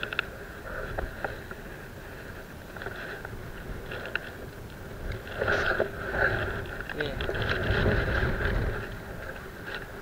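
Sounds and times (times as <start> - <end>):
faint clicks: 0.0 - 1.6
sea against concrete wall: 0.0 - 10.0
wind on microphone: 0.0 - 10.0.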